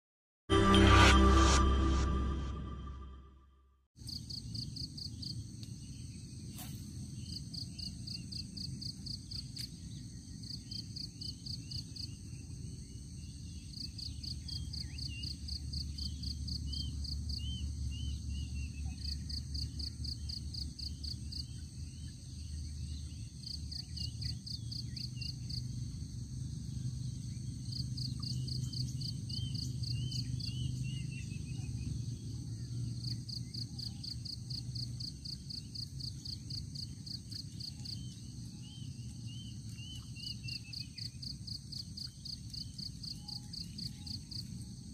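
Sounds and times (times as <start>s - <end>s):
insects trilling: 32.0s - 44.9s.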